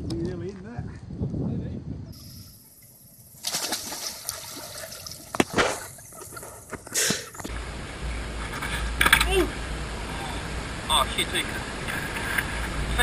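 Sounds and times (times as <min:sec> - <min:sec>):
wind rumble on microphone: 0:00.0 - 0:02.5
water splashing and sloshing: 0:02.2 - 0:07.6.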